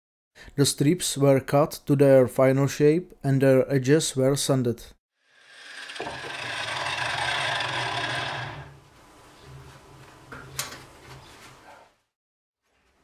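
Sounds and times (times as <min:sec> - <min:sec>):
grinder disc grinding steel: 0:05.3 - 0:08.8.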